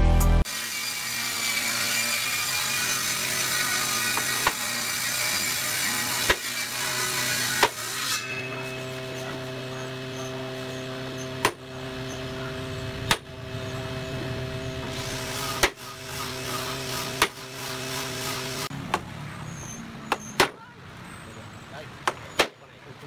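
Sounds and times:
steady hum: 8.3s - 18.7s.

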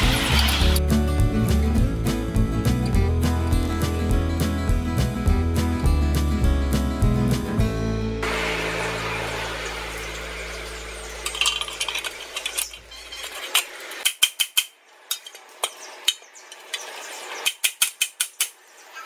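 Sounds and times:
background music: 0.0s - 11.6s
metal parts clinking: 11.2s - 15.4s.

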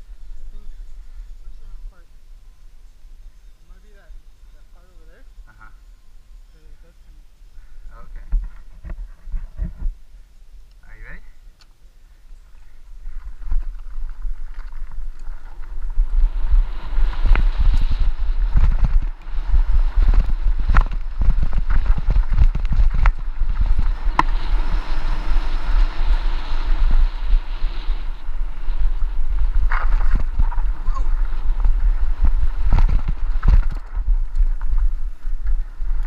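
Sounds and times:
wind buffeting microphone: 12.2s - 36.0s.

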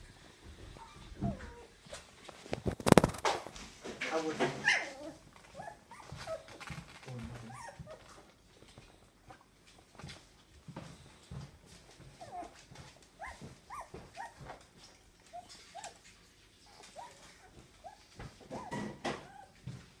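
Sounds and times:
puppies whimpering: 7.3s - 8.3s, 12.1s - 12.6s.

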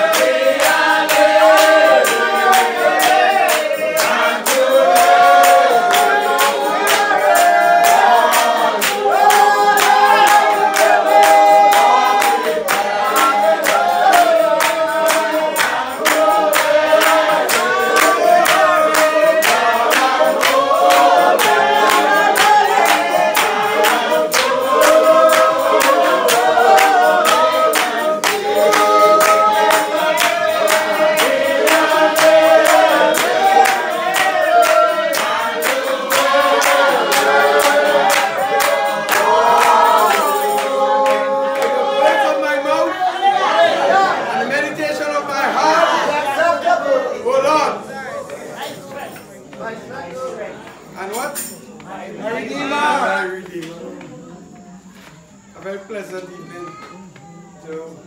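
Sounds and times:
hands clapping in rhythm: 0.0s - 42.9s, 48.2s - 52.1s, 53.4s - 58.0s
congregation singing a hymn: 0.0s - 58.0s.

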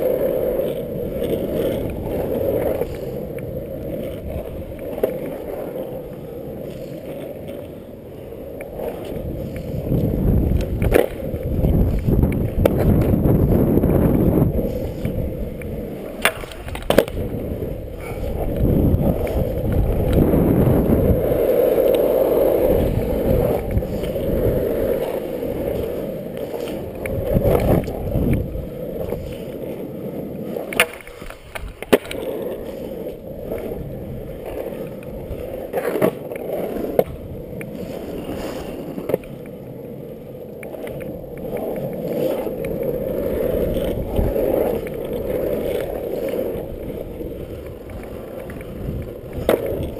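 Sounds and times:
skateboard wheels rolling on asphalt: 0.0s - 49.9s.

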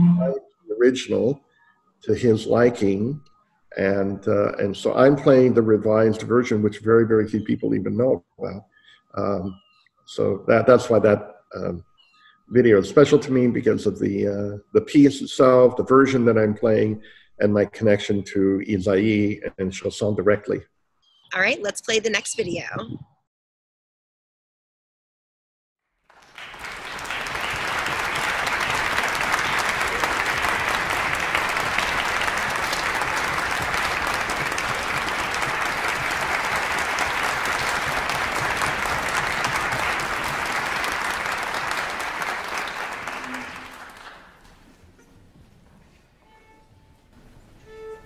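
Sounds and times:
audience applauding: 26.1s - 44.8s.

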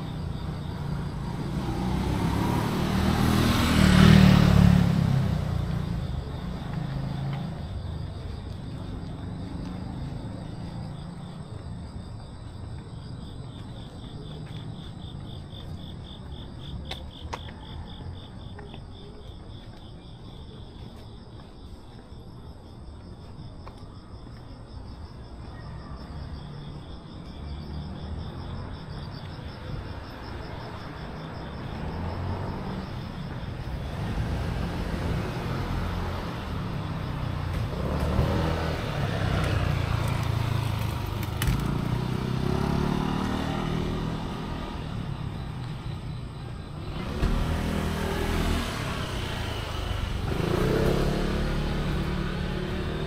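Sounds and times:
crickets chirping: 0.0s - 53.0s
low rumble of road traffic: 0.0s - 53.0s.

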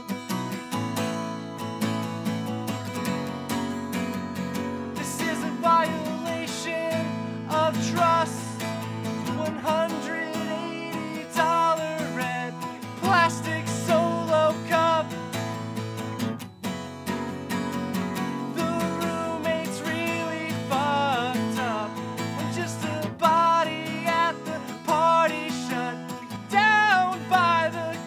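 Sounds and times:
acoustic guitar strumming: 0.0s - 28.0s
person singing wordless melody: 5.0s - 8.6s, 9.2s - 15.2s, 18.4s - 28.0s.

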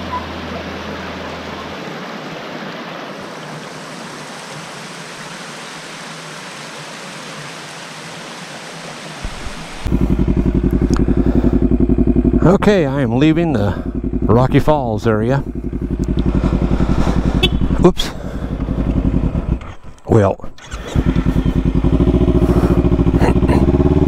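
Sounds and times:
creek water rushing over rock: 0.0s - 10.4s
motorcycle engine running: 9.2s - 19.8s, 20.6s - 24.0s.

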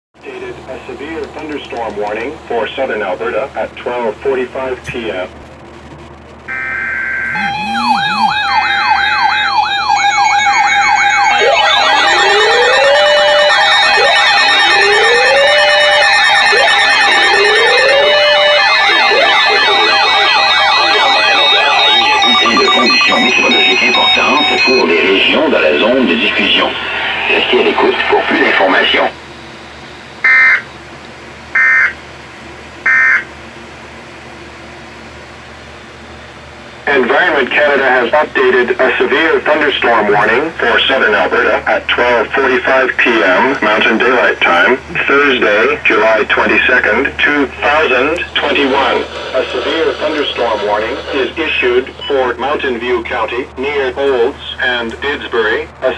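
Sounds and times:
steady alarm tones: 6.2s - 30.9s, 31.5s - 32.0s, 32.8s - 33.3s, 36.9s - 55.9s
slow rising siren wail: 6.5s - 29.3s
electronic siren alarms: 6.5s - 30.8s, 31.5s - 32.0s, 32.8s - 33.3s, 45.6s - 52.6s
low radio hiss: 23.8s - 29.9s, 36.9s - 55.9s
buzzy digital data bursts: 47.7s - 51.9s.

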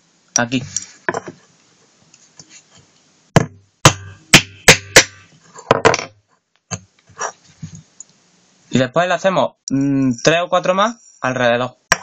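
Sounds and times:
hammer striking nail into metal: 3.4s - 5.2s.

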